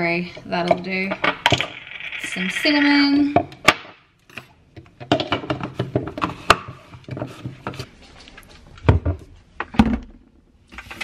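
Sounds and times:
kitchen items tapping and clicking: 0.4s - 7.9s.

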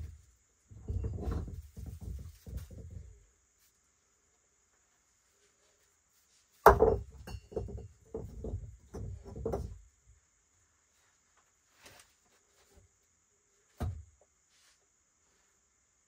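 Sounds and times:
stones scraping and thudding: 0.0s - 3.2s, 6.6s - 9.8s
rock knocking on rock: 6.6s - 9.8s.

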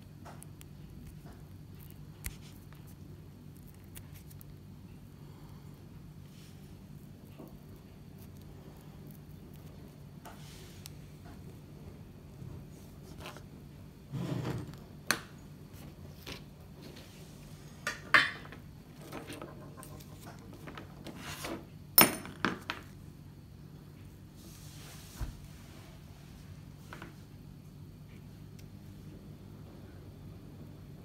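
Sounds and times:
faint steady hum: 0.0s - 31.0s.

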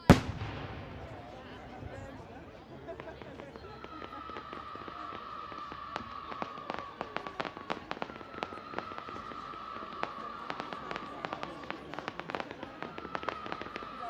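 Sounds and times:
distant fireworks popping and crackling: 0.0s - 14.0s
high firework whistle: 3.4s - 14.0s.

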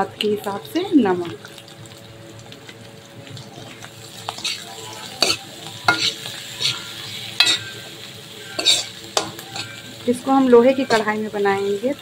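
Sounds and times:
light sizzle: 0.0s - 12.0s
spatula scraping an iron pan: 4.3s - 9.9s.

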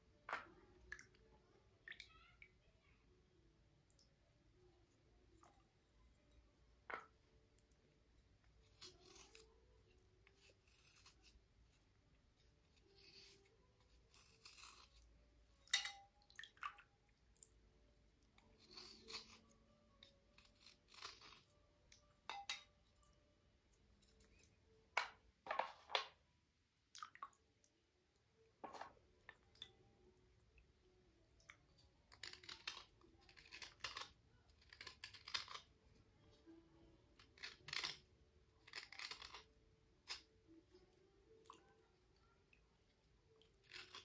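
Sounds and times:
stone cubes scraping and clicking: 37.4s - 38.1s.

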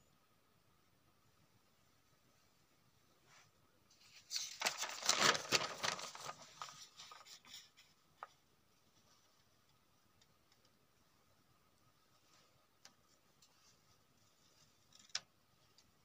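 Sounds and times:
paper rustling and crinkling: 3.9s - 9.6s.

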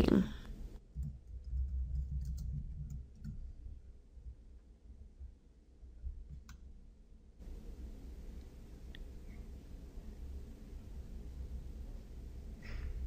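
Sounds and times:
low steady hum: 0.0s - 13.0s
computer keyboard typing: 0.9s - 3.5s.

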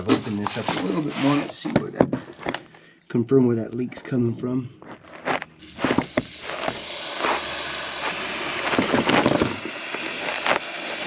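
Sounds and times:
knocks and scrapes: 0.0s - 2.8s, 4.7s - 7.4s, 8.0s - 10.6s
water hissing from leaking pipe: 5.6s - 11.0s.

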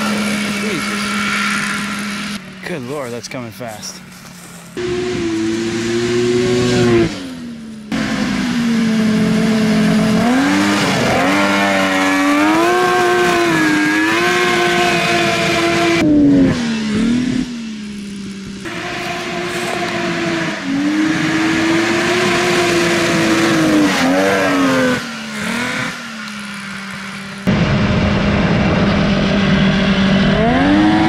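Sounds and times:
two-stroke engine revving: 0.0s - 31.0s.

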